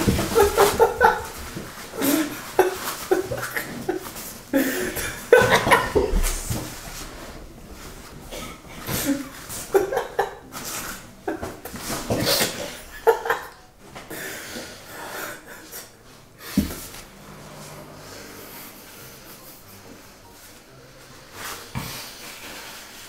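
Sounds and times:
stifled laughter: 0.0 - 6.5, 8.3 - 13.6.

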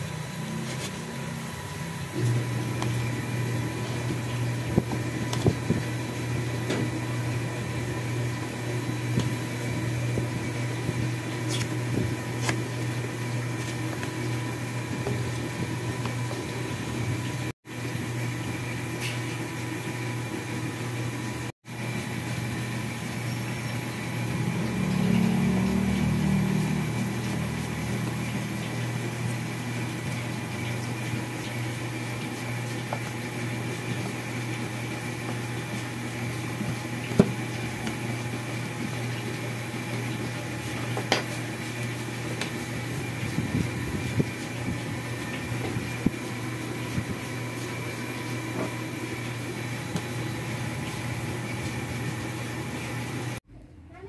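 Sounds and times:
low mechanical hum: 0.0 - 54.0.

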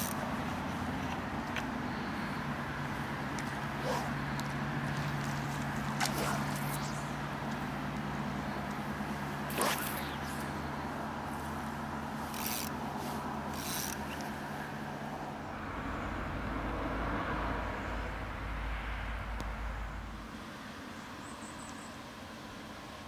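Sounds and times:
fly line rasping: 0.0 - 1.2, 3.3 - 7.6, 9.4 - 11.5, 12.2 - 14.4.

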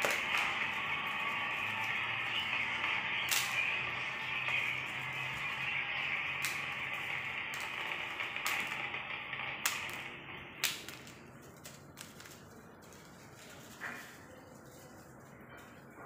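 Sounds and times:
bang snaps cracking on tiles: 3.3 - 3.6, 7.5 - 11.2.

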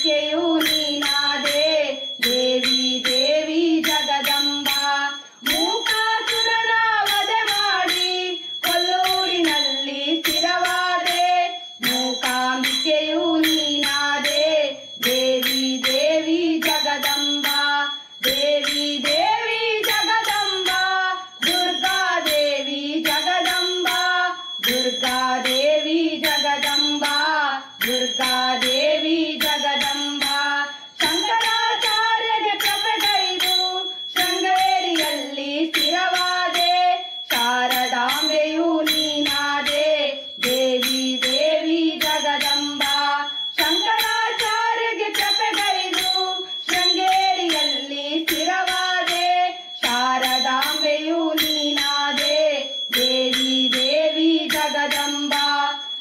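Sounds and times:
women singing devotional song: 0.0 - 56.0.

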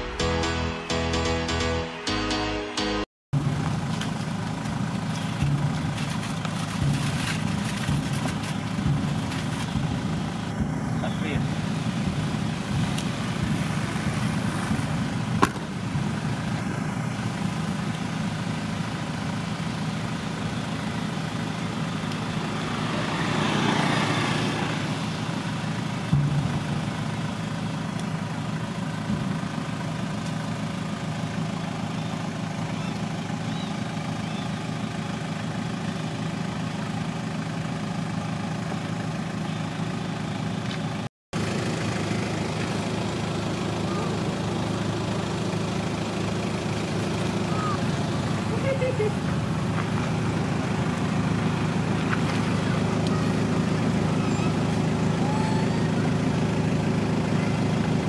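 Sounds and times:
vehicle engine idling: 3.4 - 58.0.

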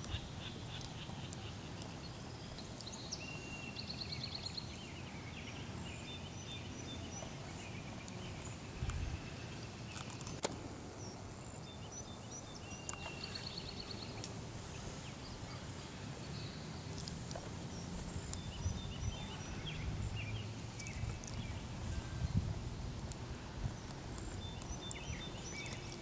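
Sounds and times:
small birds chirping: 0.0 - 26.0
steady low rumble: 13.8 - 26.0.

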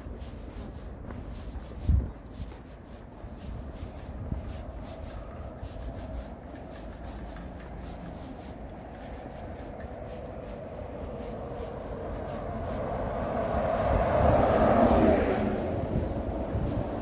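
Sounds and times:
footsteps walking: 0.0 - 17.0
steady low rumble: 0.0 - 17.0
vehicle drone: 3.8 - 17.0.

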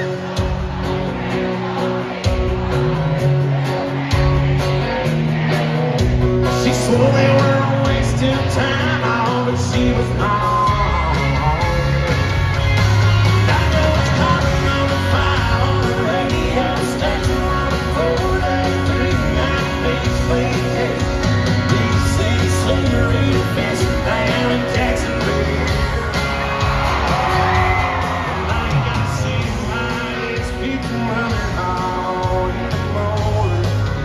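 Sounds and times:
live country band playing: 0.0 - 34.0
person singing: 6.4 - 12.3, 13.2 - 34.0.

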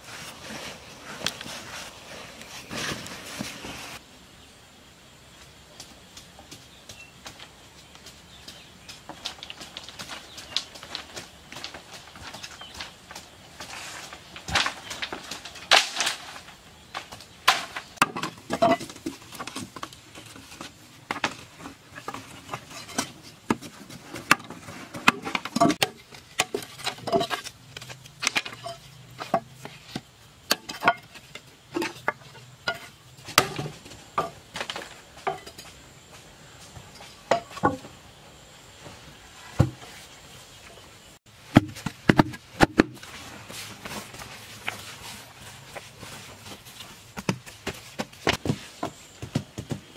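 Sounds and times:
hand tool scraping dry earth: 7.9 - 35.7.

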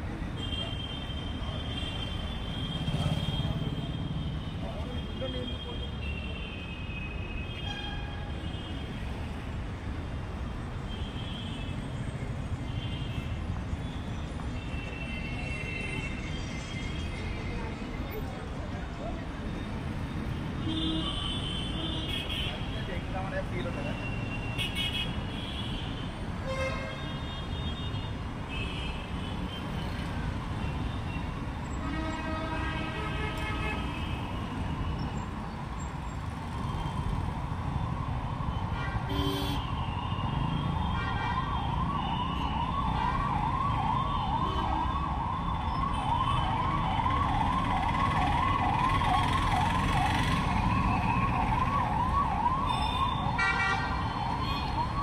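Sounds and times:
street traffic rumbling: 0.0 - 55.0
vehicle horns: 31.1 - 34.4, 38.7 - 39.8, 52.7 - 54.6
emergency vehicle siren: 34.2 - 55.0.

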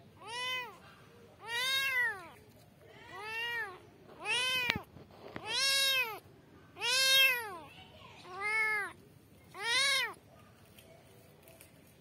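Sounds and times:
kitten meowing: 0.2 - 0.8, 1.4 - 2.4, 3.1 - 6.2, 6.8 - 7.7, 8.3 - 9.0, 9.6 - 10.2.

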